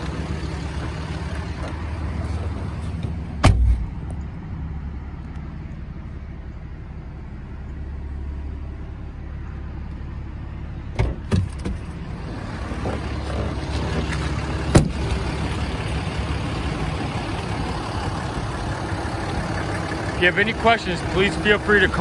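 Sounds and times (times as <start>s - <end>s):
diesel engine idling: 0.0s - 22.0s
car door shutting: 14.7s - 15.1s.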